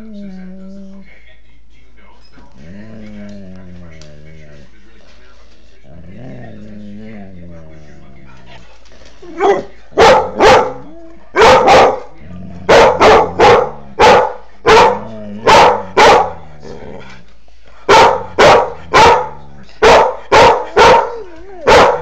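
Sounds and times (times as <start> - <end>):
dog growling: 2.6 - 4.6, 5.9 - 8.6, 12.2 - 14.0, 14.9 - 17.2
dog barking: 9.4 - 12.1, 12.7 - 16.4, 17.9 - 22.0.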